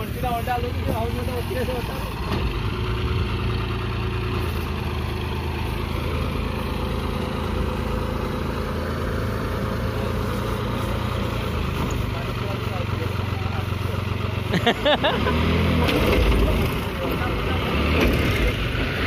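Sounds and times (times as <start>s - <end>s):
tractor diesel engine running: 0.0s - 19.0s.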